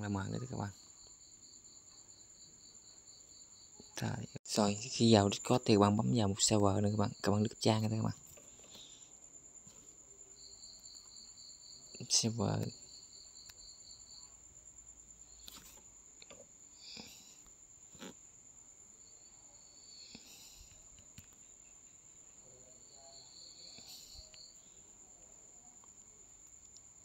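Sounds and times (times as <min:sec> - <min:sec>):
faint chirping trills: 0:01.8 - 0:17.8.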